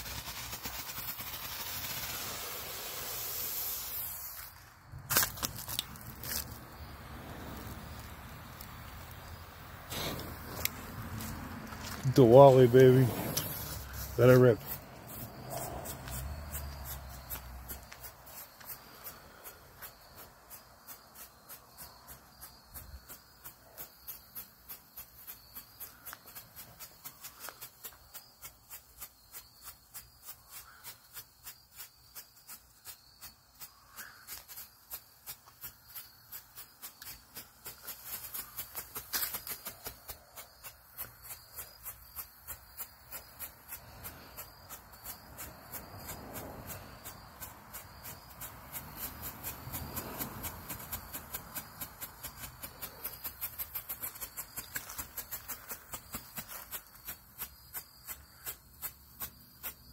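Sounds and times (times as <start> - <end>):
loud firework crack: 0.0 - 19.3
strobe firework pops: 12.7 - 14.5.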